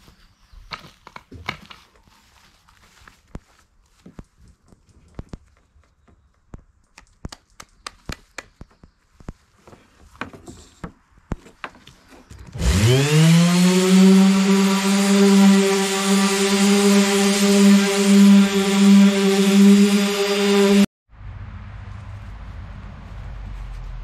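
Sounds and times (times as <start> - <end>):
orbital sander running: 12.6 - 20.9.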